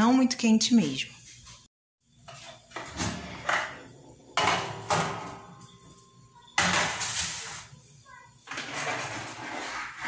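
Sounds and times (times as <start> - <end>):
baking tray scraping metal: 2.2 - 5.8, 6.6 - 10.0.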